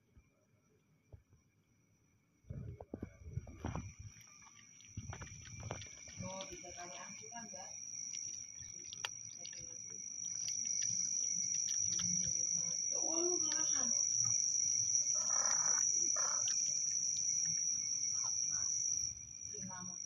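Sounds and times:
crickets trilling: 0.0s - 20.0s
cat crunching kibble: 3.6s - 14.3s, 15.8s - 18.8s.

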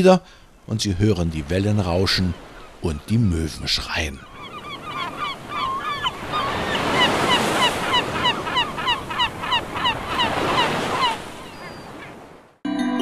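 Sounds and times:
gulls crying: 1.5s - 12.2s
breaking surf: 6.2s - 11.4s.

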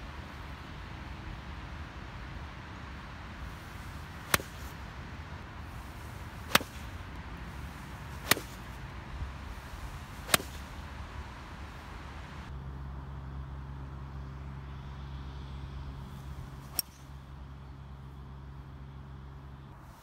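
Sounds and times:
steady background noise: 0.0s - 20.0s
golf club striking balls: 3.6s - 12.5s, 16.6s - 17.2s.

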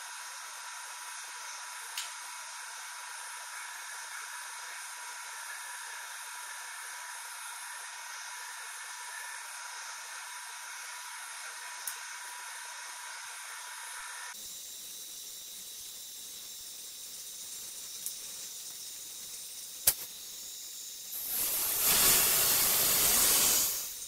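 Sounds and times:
faint steady hiss: 0.0s - 24.0s
sharp click: 19.8s - 20.1s
air rushing into bell jar: 21.2s - 24.0s.

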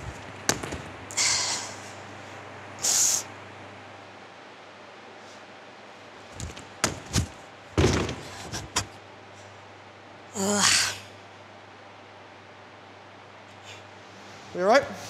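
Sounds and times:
body thudding onto gym floor: 0.0s - 1.0s, 6.4s - 8.6s.

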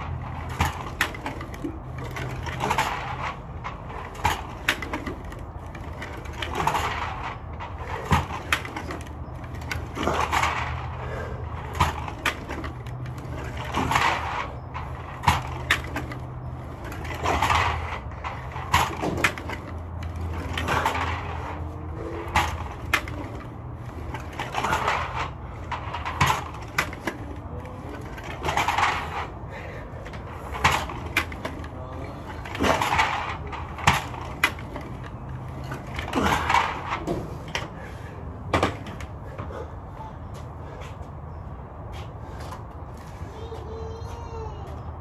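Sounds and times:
man breathing hard: 10.9s - 11.7s, 29.4s - 30.5s, 39.2s - 41.3s.

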